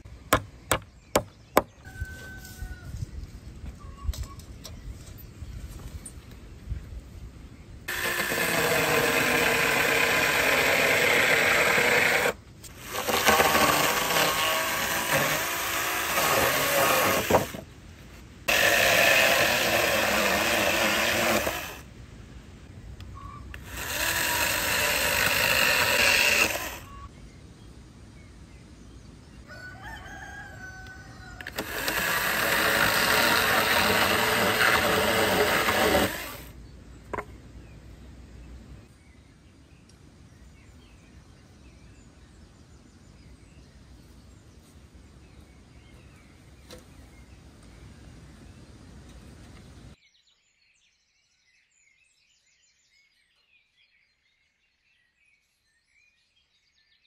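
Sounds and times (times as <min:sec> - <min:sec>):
power tool running: 0:07.9 - 0:17.6, 0:18.5 - 0:21.8, 0:23.5 - 0:26.9, 0:31.4 - 0:36.5.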